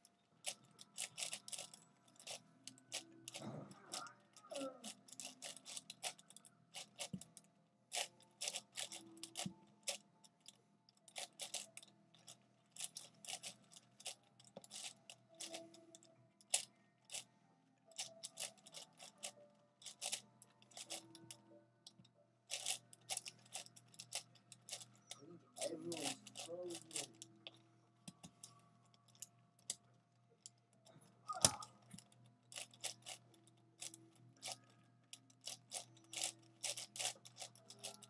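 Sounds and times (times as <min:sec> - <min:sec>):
plastic puzzle cube clicking: 0:00.4 - 0:17.3, 0:17.9 - 0:27.3, 0:31.3 - 0:38.0.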